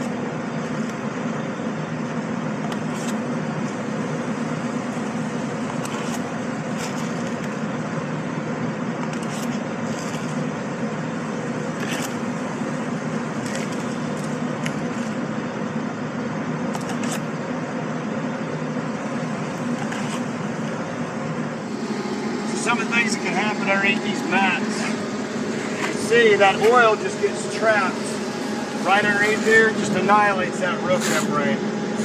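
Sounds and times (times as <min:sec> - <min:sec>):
ventilation machinery hum: 0:00.0 - 0:32.0
granular absorbent scrapes and clicks: 0:11.8 - 0:12.2, 0:19.8 - 0:20.3.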